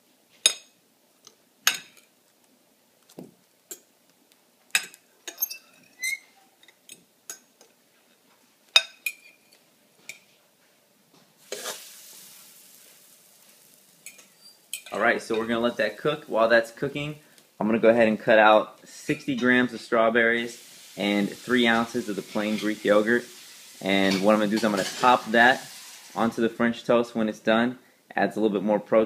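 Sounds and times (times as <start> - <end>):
bread sizzling on griddle: 11.4 - 17.2, 18.9 - 26.6.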